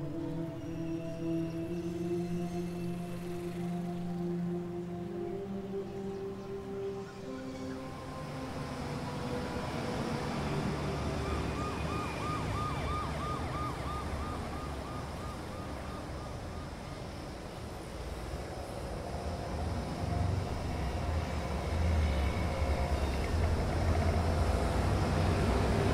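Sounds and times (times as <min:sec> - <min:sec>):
siren yelping: 0:10.6 - 0:17.0.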